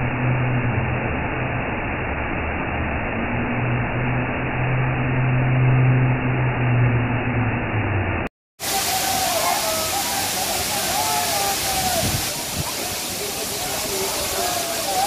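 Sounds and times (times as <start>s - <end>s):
low engine drone: 0.0s - 8.3s.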